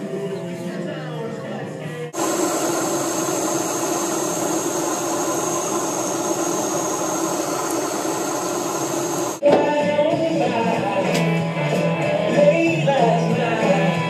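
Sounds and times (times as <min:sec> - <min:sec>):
music: 0:00.0 - 0:02.2, 0:09.4 - 0:14.0
blowtorch hissing: 0:02.2 - 0:09.4.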